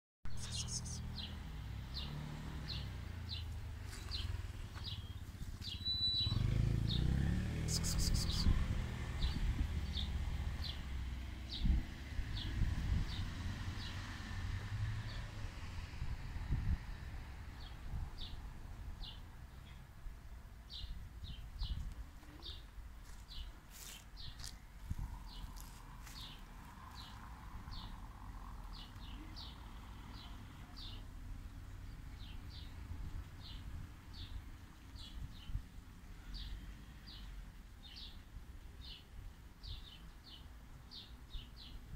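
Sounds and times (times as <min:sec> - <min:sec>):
small bird chirping: 0:00.3 - 0:01.4, 0:02.7 - 0:08.6
low wind rumble: 0:08.3 - 0:28.8.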